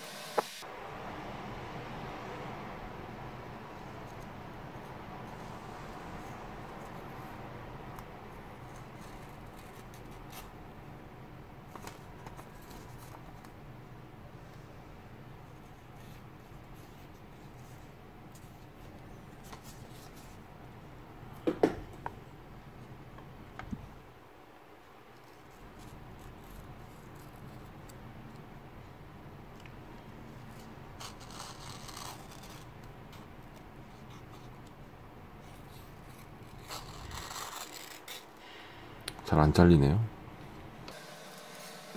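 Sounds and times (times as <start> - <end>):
blade rasping on paper: 30.5 - 33.3, 35.6 - 38.3
paper tearing: 30.5 - 33.3, 35.8 - 38.3.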